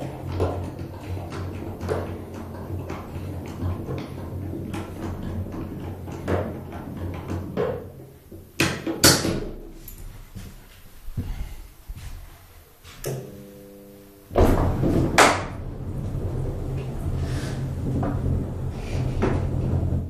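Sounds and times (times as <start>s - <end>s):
low steady hum: 9.4s - 20.0s.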